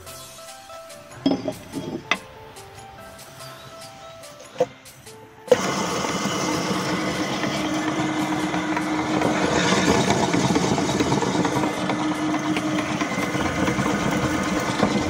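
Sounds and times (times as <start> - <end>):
meat grinder whirring: 5.5 - 15.0.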